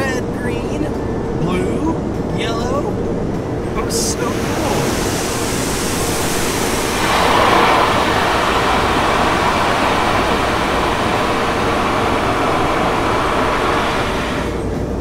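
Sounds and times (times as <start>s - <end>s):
water spraying on vehicle: 3.8s - 14.7s.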